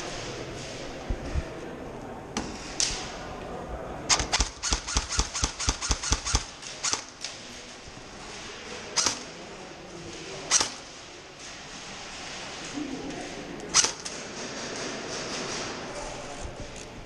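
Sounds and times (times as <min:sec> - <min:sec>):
airsoft gunfire cracks: 0:04.1 - 0:07.3.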